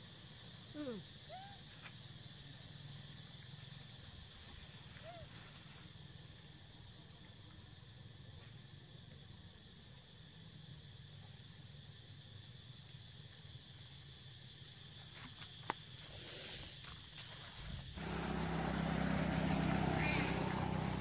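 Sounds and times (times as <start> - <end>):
insects chorus: 0.0 - 21.0
brief loud hiss: 16.1 - 16.8.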